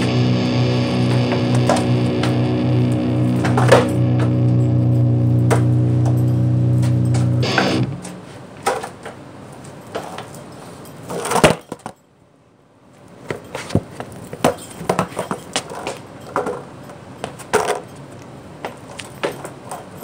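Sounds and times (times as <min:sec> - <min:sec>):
skateboard scuffs: 0:13.2 - 0:16.6
skateboard clacking on concrete: 0:13.3 - 0:17.9.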